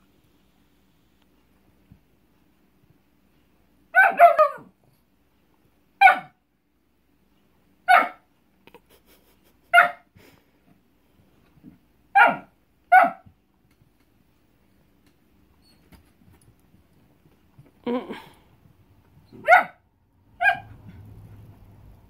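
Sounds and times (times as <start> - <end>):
dog barking sharply: 4.0 - 4.7, 7.9 - 8.2, 12.2 - 13.2, 19.4 - 19.8, 20.4 - 20.7.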